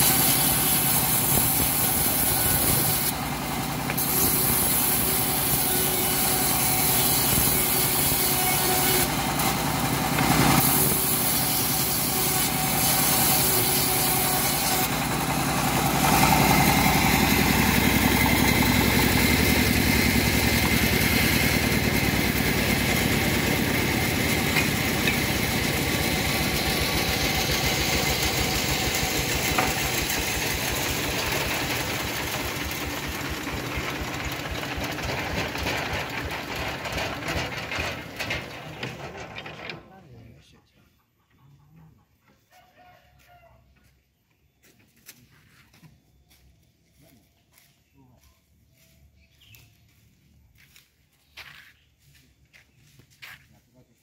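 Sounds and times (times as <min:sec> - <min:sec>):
saw blade cutting wood: 0:00.0 - 0:39.9
engine chugging: 0:00.0 - 0:40.3.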